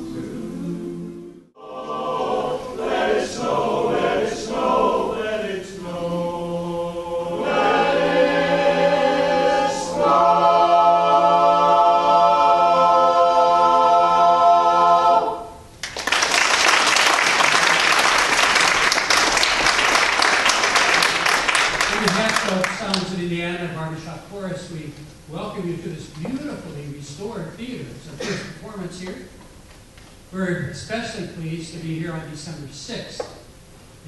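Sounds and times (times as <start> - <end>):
men's chorus singing a cappella: 0.0 - 15.4
audience applause: 15.8 - 23.0.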